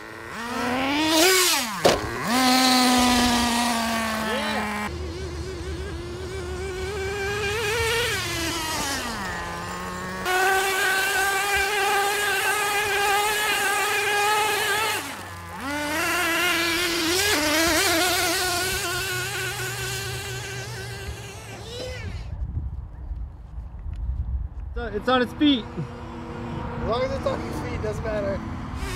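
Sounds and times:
small nitro engine buzzing: 0:00.0 - 0:22.3, 0:28.6 - 0:28.9.

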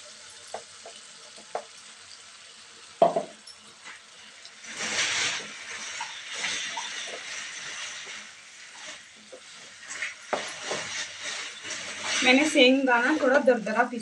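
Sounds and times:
wooden spatula scraping a pan: 0:03.8 - 0:13.9.

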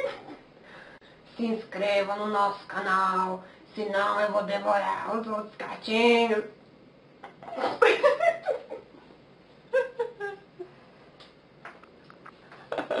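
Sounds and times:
woman laughing: 0:00.0 - 0:00.4, 0:07.4 - 0:09.0, 0:09.7 - 0:10.7.

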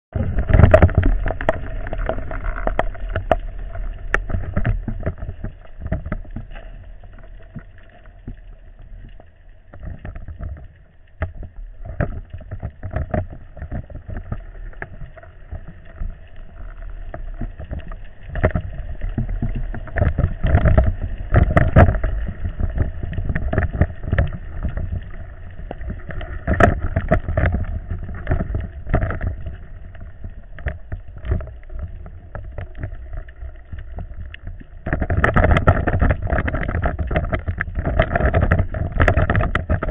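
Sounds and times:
muffled rumble of moving water: 0:00.0 - 0:39.9.

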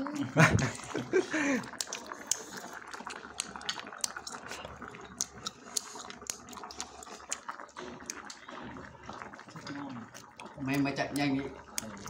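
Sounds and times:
broth boiling and bubbling: 0:00.0 - 0:12.0
small sharp pops and clicks: 0:01.8 - 0:08.6, 0:09.2 - 0:12.0.

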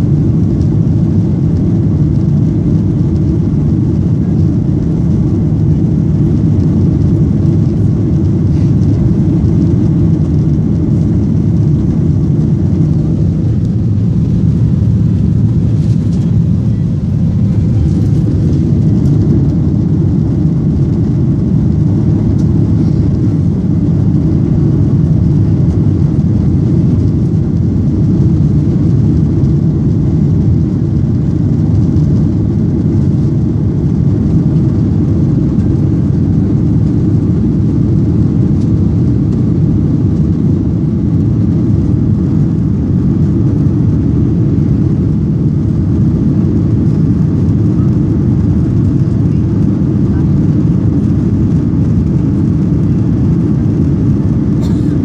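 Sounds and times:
jet engines rumbling in cabin: 0:00.0 - 0:55.0
rushing air: 0:10.9 - 0:21.8.

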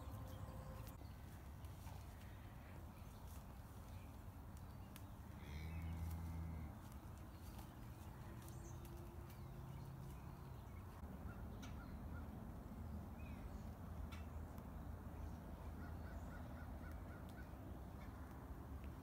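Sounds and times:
low hum: 0:00.0 - 0:01.3.

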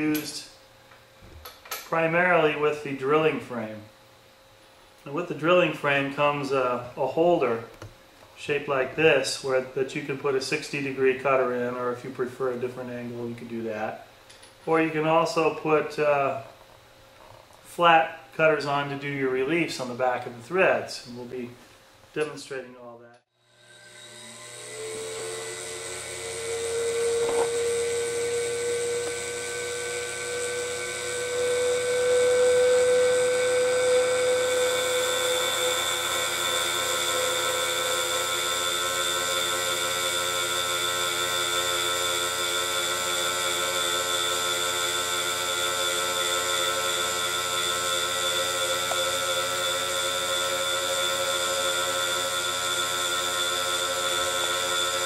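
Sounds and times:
high-speed cutter whine: 0:23.4 - 0:55.0.

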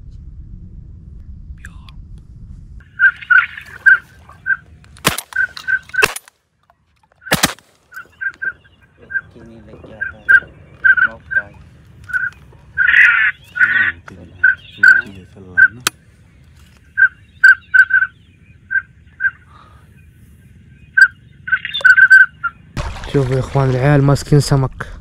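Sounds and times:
ducks quacking: 0:02.8 - 0:06.1, 0:07.9 - 0:16.0, 0:16.8 - 0:20.2, 0:20.8 - 0:22.7.

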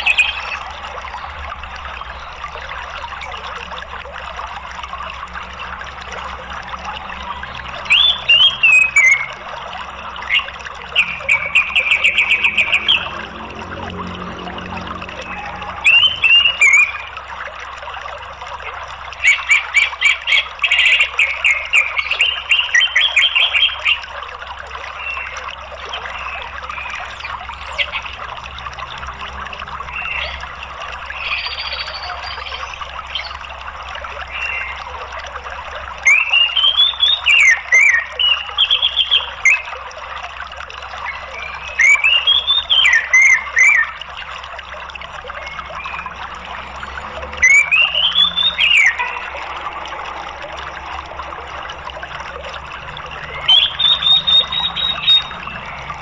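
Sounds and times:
running water: 0:00.0 - 0:56.0
thrush singing: 0:45.0 - 0:56.0.

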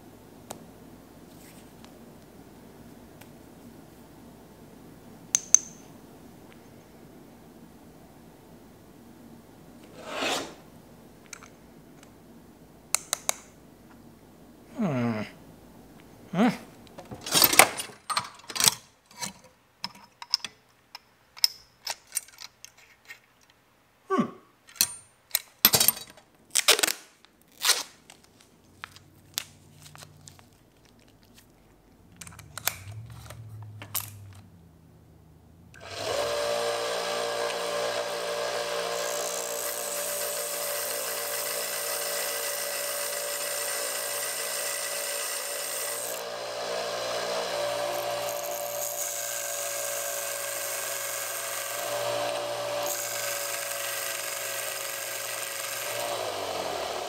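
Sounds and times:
metal sockets clinking: 0:17.2 - 0:22.8, 0:24.7 - 0:26.2, 0:32.2 - 0:34.5
belt sander running: 0:35.8 - 0:57.0
cordless drill whirring: 0:35.8 - 0:57.0
metal rod grinding on sander belt: 0:35.8 - 0:57.0.

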